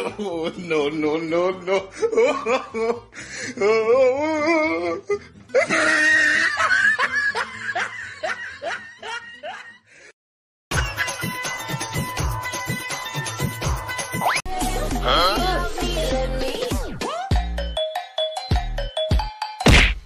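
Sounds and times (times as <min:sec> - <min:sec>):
loud laughter: 0:05.5 - 0:09.8
background music with a beat: 0:10.7 - 0:20.0.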